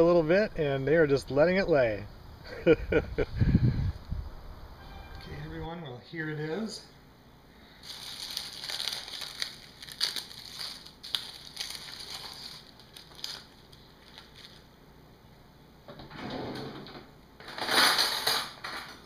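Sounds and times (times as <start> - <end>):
baked leaves crackling and rustling: 7.7 - 14.8.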